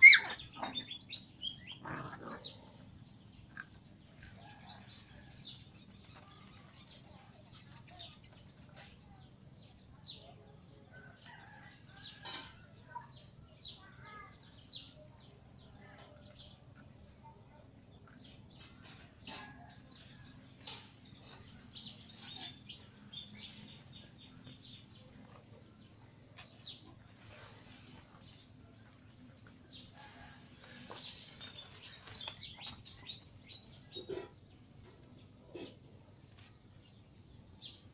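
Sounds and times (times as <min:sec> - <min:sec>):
birds chirping: 0:00.0 - 0:37.9.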